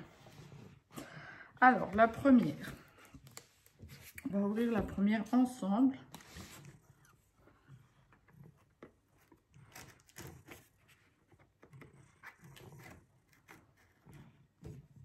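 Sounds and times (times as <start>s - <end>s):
scissors cutting cardboard box: 9.1s - 15.0s.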